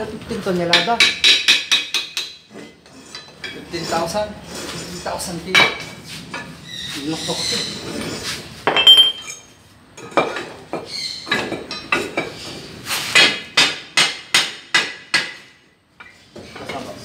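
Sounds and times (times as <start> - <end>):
metal tool clanking on steel: 8.7 - 10.5.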